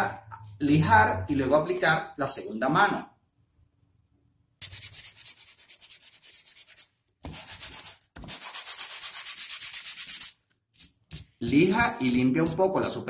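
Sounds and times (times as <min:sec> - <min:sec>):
sandpaper scraping: 0:04.6 - 0:13.0.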